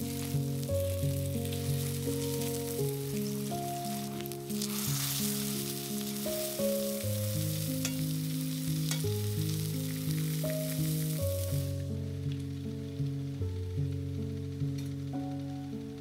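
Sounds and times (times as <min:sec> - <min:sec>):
background music with held notes: 0:00.0 - 0:16.0
food sizzling in a frying pan: 0:00.0 - 0:16.0
utensil clicking against pan: 0:07.8 - 0:08.1, 0:08.9 - 0:09.2.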